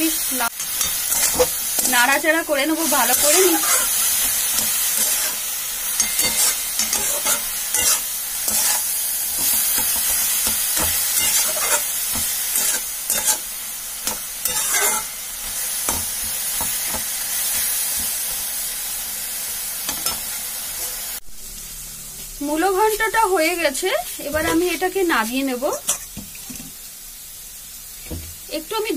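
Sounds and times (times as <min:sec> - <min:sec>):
frying sizzle: 0:00.0 - 0:28.9
metal spatula scraping pan: 0:00.6 - 0:02.2, 0:02.8 - 0:15.2.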